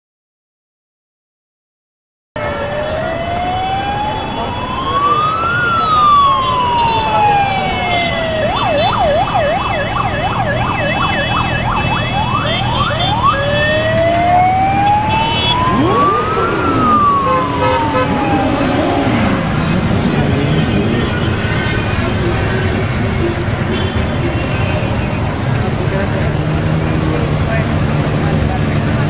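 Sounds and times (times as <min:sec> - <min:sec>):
siren wailing and yelping: 0:02.4 - 0:21.2
motorcycle engines rumbling: 0:02.4 - 0:29.0.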